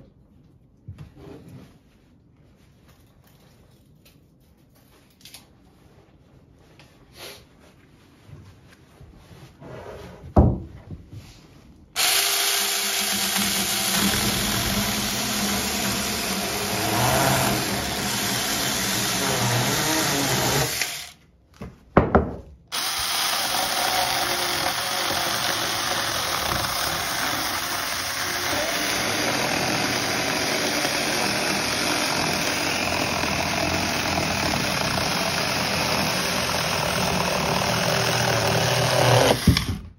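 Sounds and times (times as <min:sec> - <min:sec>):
cordless chainsaw cutting wood: 0:12.0 - 0:21.2, 0:22.7 - 0:39.9.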